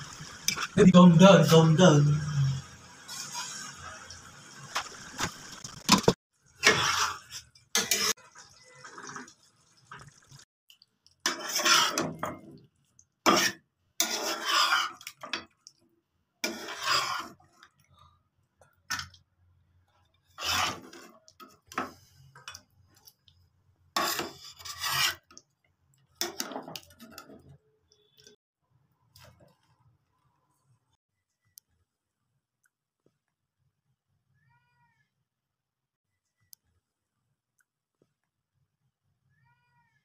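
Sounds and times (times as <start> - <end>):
spatula scraping in a pan: 3.0 - 5.8, 6.6 - 9.3, 11.2 - 12.6, 13.2 - 15.5, 16.4 - 17.7, 20.2 - 23.1, 23.9 - 25.4, 26.2 - 28.4.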